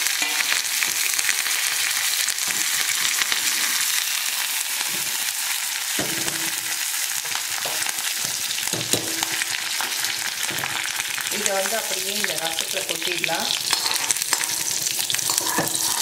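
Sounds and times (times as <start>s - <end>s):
hot oil sizzling: 0.0s - 16.0s
cookware knocks: 8.7s - 9.2s.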